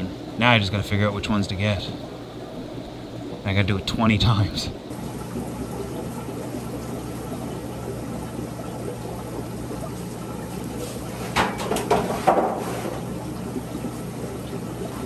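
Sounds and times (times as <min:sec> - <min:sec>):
aquarium water running and trickling: 0:00.0 - 0:15.0
water splashes: 0:00.0 - 0:15.0.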